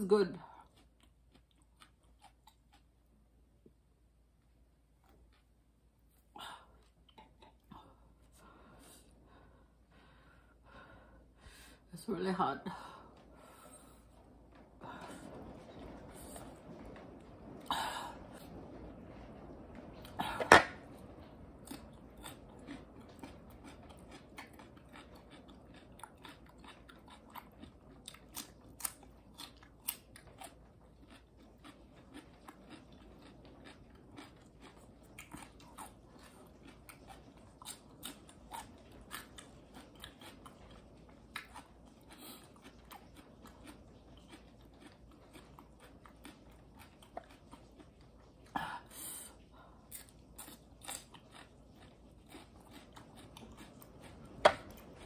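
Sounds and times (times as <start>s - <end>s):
chewing crunchy vegetables: 0.1s - 3.4s, 19.9s - 55.0s.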